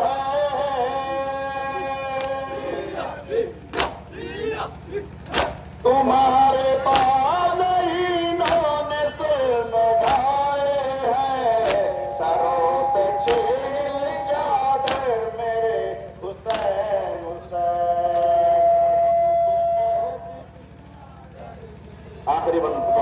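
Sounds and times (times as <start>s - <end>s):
men chanting a lament: 0.0s - 23.0s
steady low hum: 0.0s - 23.0s
chest-beating slaps: 2.2s - 2.4s, 3.7s - 4.0s, 5.2s - 5.6s, 6.9s - 7.2s, 8.4s - 8.8s, 10.0s - 10.4s, 11.6s - 12.0s, 13.2s - 13.7s, 14.8s - 15.2s, 16.5s - 16.8s.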